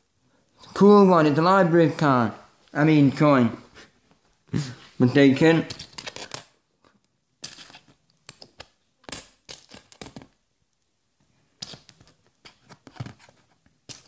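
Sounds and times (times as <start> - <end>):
coins clinking: 5.7 - 6.6, 7.4 - 7.8, 8.4 - 10.3.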